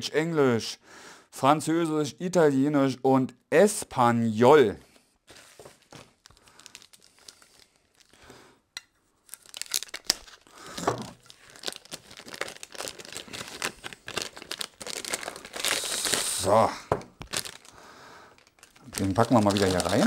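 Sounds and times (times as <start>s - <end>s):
plastic packaging crinkling: 5.3s - 8.3s, 9.2s - 20.0s.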